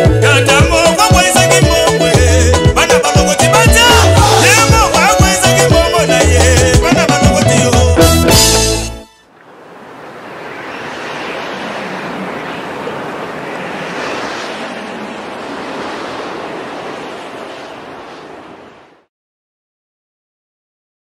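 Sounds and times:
steady rushing noise: 9.4 - 19.1.

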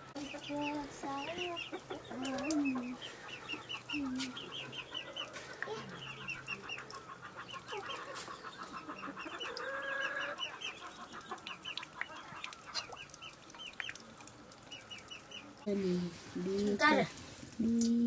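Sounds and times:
chickens clucking and calling: 0.0 - 15.7.

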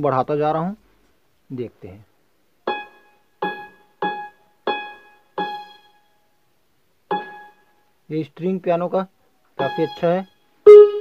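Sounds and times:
electronic keyboard piano notes: 9.6 - 11.0.

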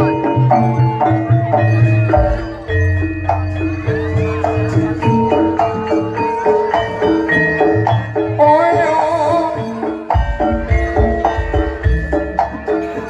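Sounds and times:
metallophones playing melody: 0.0 - 13.0
drum strokes: 10.0 - 13.0.

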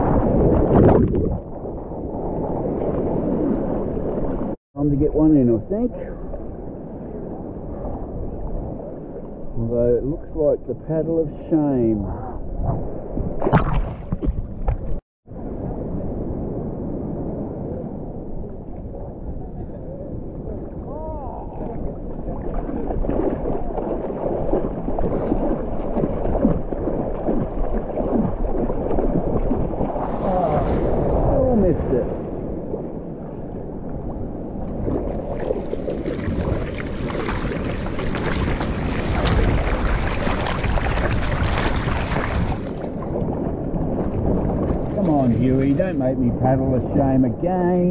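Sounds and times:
wind on microphone: 0.0 - 5.1, 5.7 - 9.9, 11.8 - 47.9
hands paddling water splashes: 22.4 - 30.8, 34.7 - 43.1
water washing around board: 22.4 - 30.8, 34.8 - 46.0.

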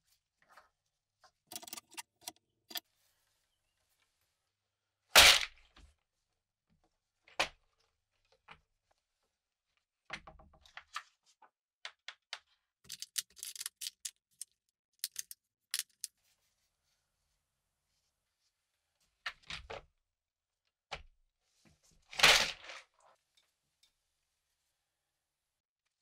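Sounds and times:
small metal bits rattling: 12.9 - 16.1.

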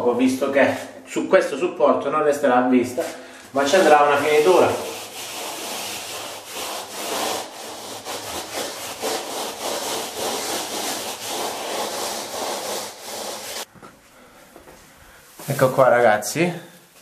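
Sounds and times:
sponge float scrubbing plaster: 3.6 - 13.7.

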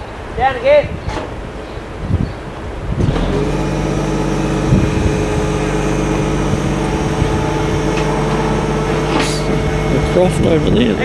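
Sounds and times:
truck engine running: 3.0 - 11.0.

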